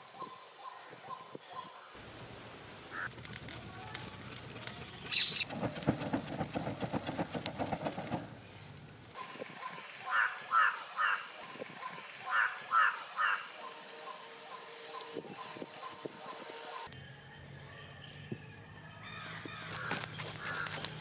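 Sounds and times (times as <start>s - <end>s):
hand fan swishing: 3.1s - 9.6s
bird calling: 4.8s - 8.4s, 9.6s - 16.8s, 19.6s - 21.0s.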